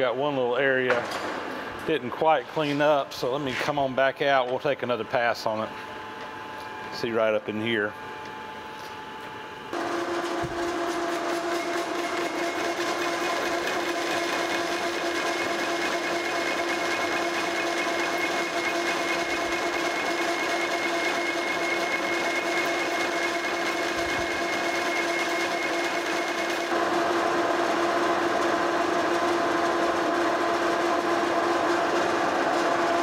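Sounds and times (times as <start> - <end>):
metal lathe running with gear whine: 9.7 - 33.0.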